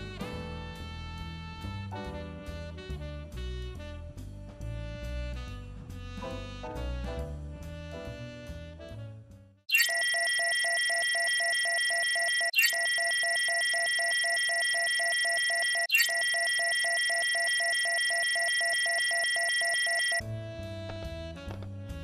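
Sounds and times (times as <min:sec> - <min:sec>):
rapid pulsing beeps: 0:09.7 - 0:20.2.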